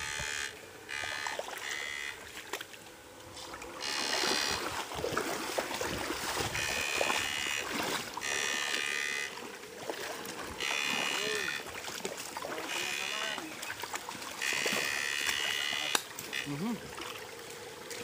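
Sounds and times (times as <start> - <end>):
electric shocker buzzing: 0.0 - 2.4, 3.8 - 4.9, 6.4 - 9.5, 10.5 - 11.8, 12.6 - 13.6, 14.4 - 16.7
water sloshing: 0.0 - 18.0.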